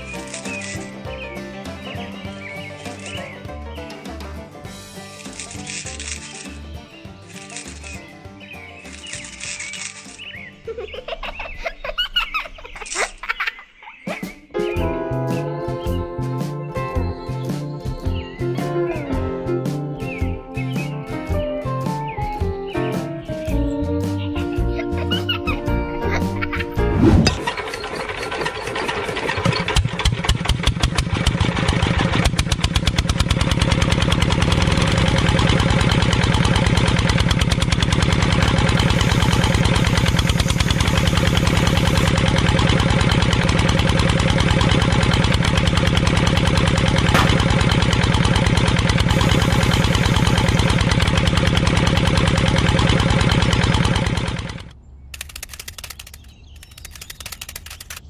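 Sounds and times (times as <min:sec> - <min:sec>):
small diesel engine running: 0:00.0 - 0:03.4, 0:04.7 - 0:08.0, 0:08.8 - 0:10.4, 0:27.3 - 0:54.8.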